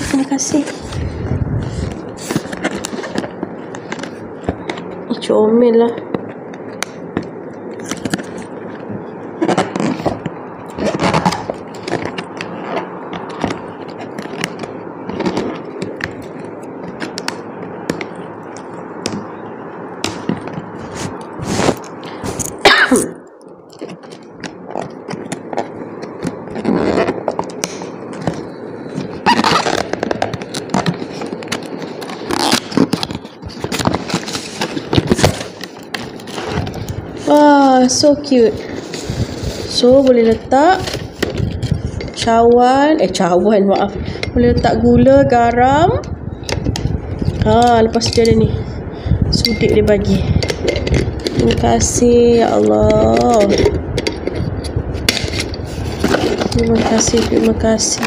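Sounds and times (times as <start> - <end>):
cardboard rustling: 0.0 - 5.2, 5.9 - 19.4, 20.0 - 22.7, 23.7 - 43.2, 49.8 - 58.0
cardboard scraping and crackling: 0.0 - 19.4, 20.0 - 22.7, 23.7 - 48.7, 49.7 - 58.0
packing tape tearing: 9.4 - 18.2, 23.7 - 37.4, 52.9 - 58.0
cardboard box being opened: 53.2 - 58.0.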